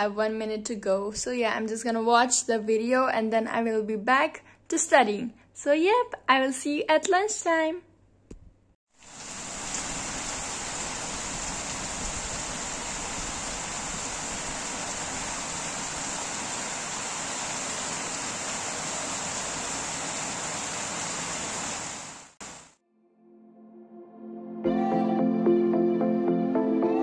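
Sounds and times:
steady rain falling: 0:09.0 - 0:22.8.

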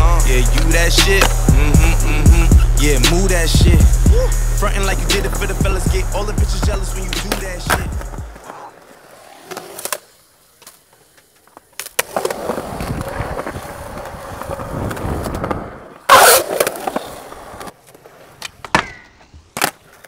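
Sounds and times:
skateboard wheels rolling on concrete: 0:00.0 - 0:20.0
skateboard clicks: 0:00.5 - 0:01.5, 0:07.0 - 0:20.0
skateboard clacking on ground: 0:07.1 - 0:20.0.

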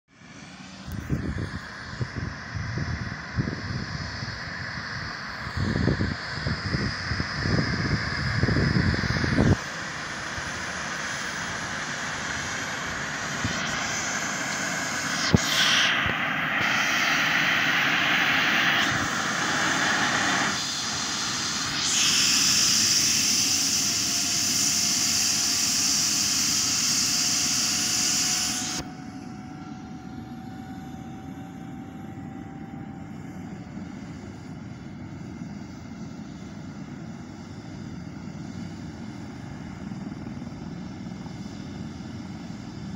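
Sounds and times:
helicopter turbine engines starting: 0:00.1 - 0:42.9
wind buffeting microphone: 0:01.0 - 0:11.0.

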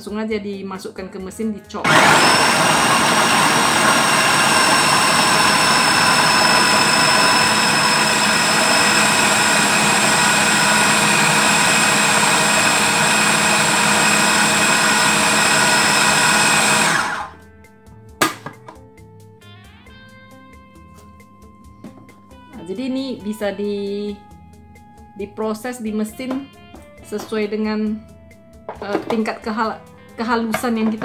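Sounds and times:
food processor chopping garlic: 0:01.8 - 0:17.4
high motor whine: 0:01.9 - 0:17.4.

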